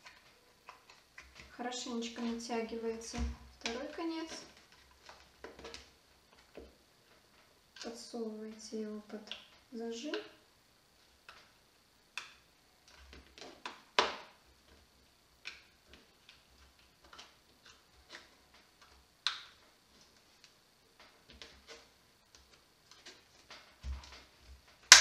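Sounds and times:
plastic film clicking and crinkling: 0:00.0 - 0:01.6, 0:03.6 - 0:08.0, 0:11.0 - 0:25.0.

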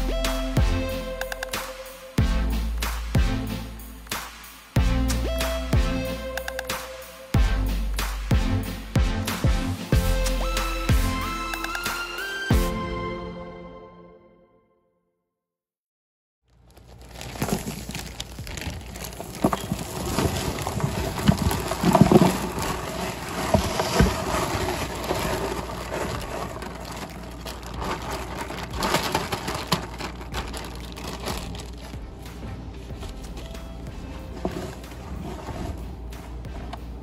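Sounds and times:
soil pouring into wooden planter: 0:16.6 - 0:31.8.

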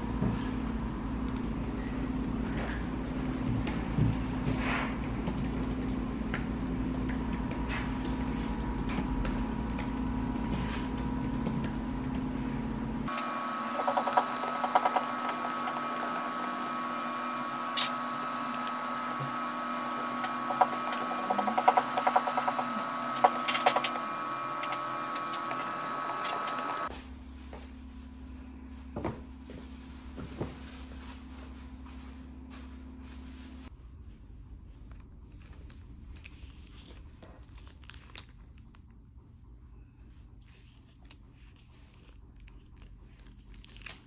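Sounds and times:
faint hum: 0:00.0 - 0:44.0
computer keyboard typing: 0:05.2 - 0:12.2, 0:13.7 - 0:16.0, 0:20.2 - 0:24.0.

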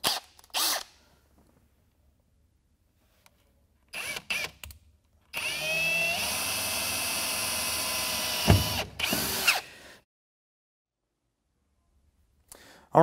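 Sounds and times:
cordless drill motor whine: 0:05.4 - 0:09.6.

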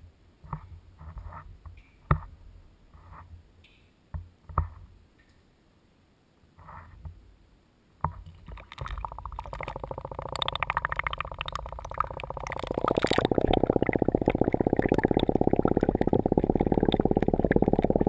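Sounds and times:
fast fluttering rattle: 0:08.4 - 0:18.0.

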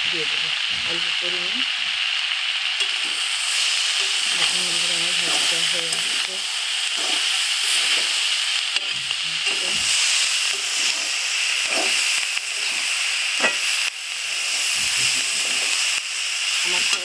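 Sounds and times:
vegetables sizzling in oil: 0:00.0 - 0:17.0
metal spatula scraping a pan: 0:06.9 - 0:08.2, 0:08.8 - 0:13.7.

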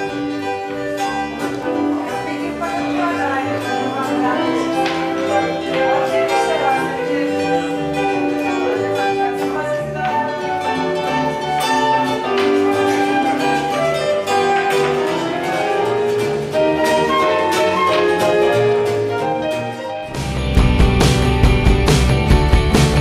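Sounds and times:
melody line: 0:00.0 - 0:22.3
guitar: 0:00.0 - 0:23.0
plucked double bass: 0:20.1 - 0:23.0.

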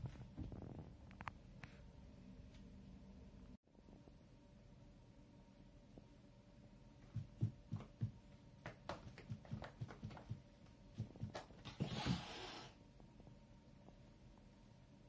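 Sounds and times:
cat hissing: 0:11.7 - 0:12.8.

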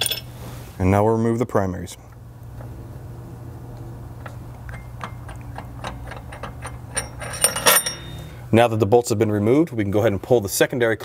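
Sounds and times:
metal ticking of bolt unscrewing: 0:04.2 - 0:08.2
metallic clinking: 0:04.7 - 0:08.4.

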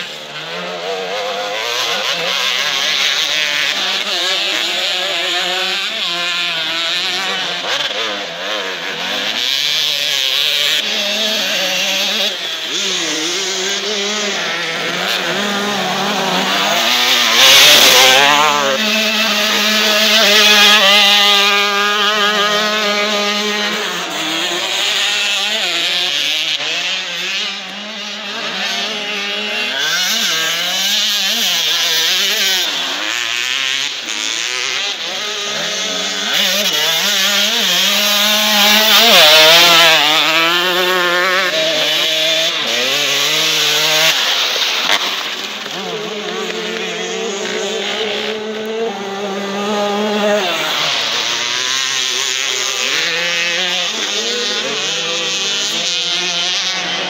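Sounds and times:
dirt bike engines revving: 0:00.0 - 0:57.0.

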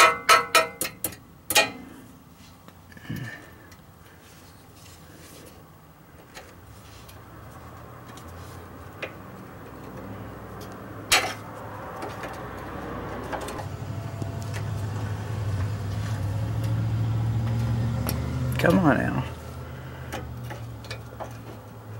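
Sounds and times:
sharp metal clack: 0:00.0 - 0:01.9.

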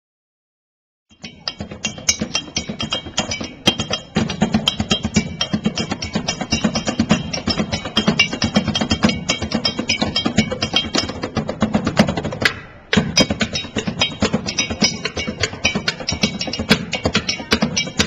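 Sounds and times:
sticks drumming on pans and drums: 0:01.1 - 0:18.0.

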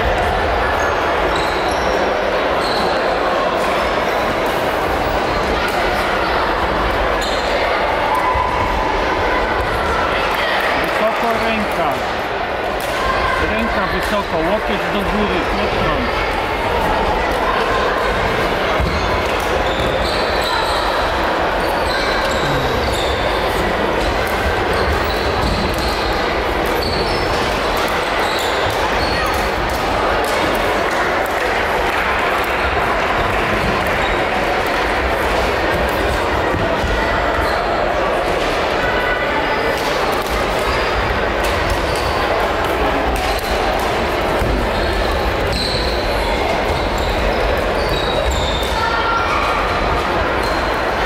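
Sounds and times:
echoing din of play: 0:00.0 - 0:51.0
many voices talking: 0:00.0 - 0:51.0
shoes squeaking on court floor: 0:02.6 - 0:03.0, 0:18.8 - 0:29.4.

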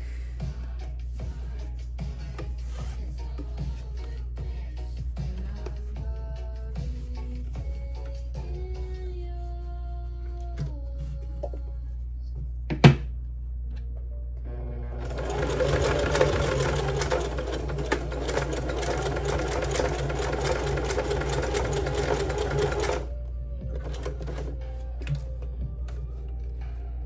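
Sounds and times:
sewing machine running: 0:14.5 - 0:23.1, 0:23.8 - 0:24.6.

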